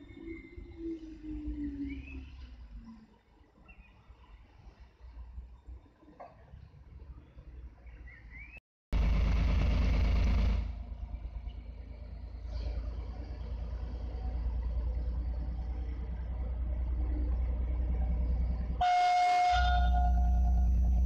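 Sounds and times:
locomotive diesel engine rumble: 0:08.9 - 0:21.0.

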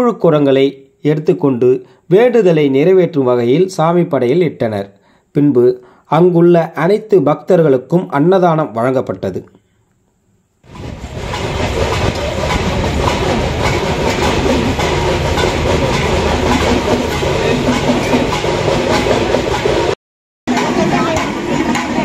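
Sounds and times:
rapid percussive clatter: 0:10.7 - 0:22.0
crowd noise: 0:20.5 - 0:22.0.

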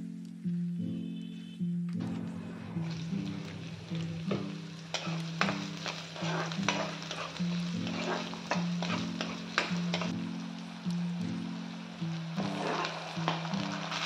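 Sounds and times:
background music plucked notes: 0:00.0 - 0:14.0
onions sizzling in hot oil: 0:02.8 - 0:14.0
steel ladle scraping pan: 0:04.3 - 0:10.1, 0:12.4 - 0:14.0.

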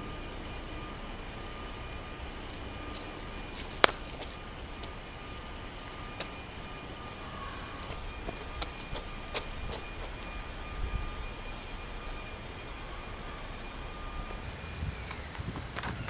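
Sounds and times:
powder pouch smacking concrete: 0:03.6 - 0:04.4.

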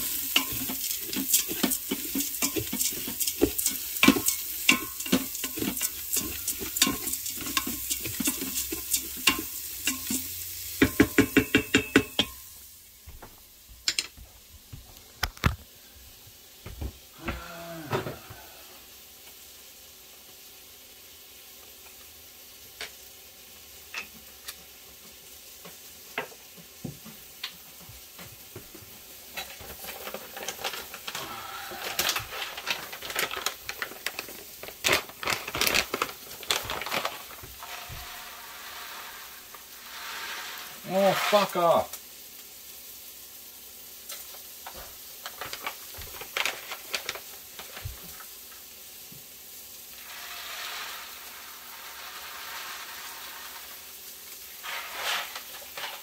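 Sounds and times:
wooden spoon stirring and scraping: 0:00.0 - 0:12.4, 0:31.8 - 0:42.0, 0:50.0 - 0:56.0
rice sizzling in butter: 0:00.0 - 0:56.0
sharp ringing knocks on pot: 0:10.8 - 0:12.4.

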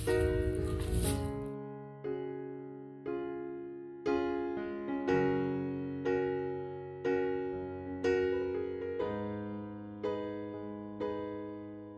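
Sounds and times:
piano chords: 0:00.0 - 0:11.9.

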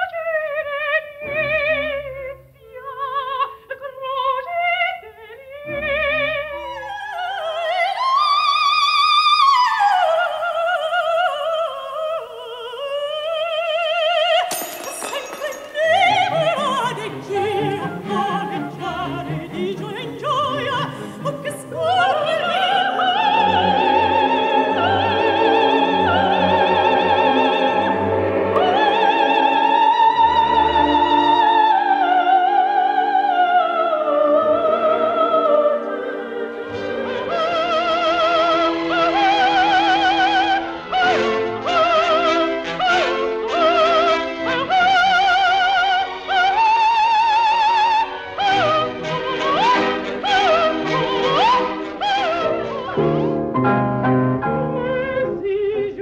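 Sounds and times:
orchestral accompaniment: 0:14.3 - 0:33.2, 0:34.1 - 0:55.8.

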